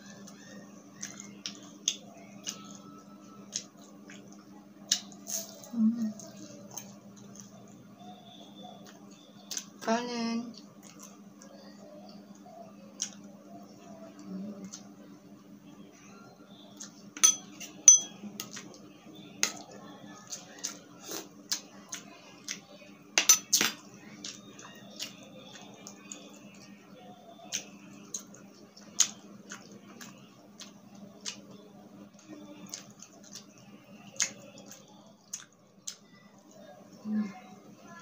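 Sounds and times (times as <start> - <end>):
faint steady hum: 0.0 - 38.0
person chewing: 0.9 - 2.8, 20.2 - 22.7, 27.5 - 36.5.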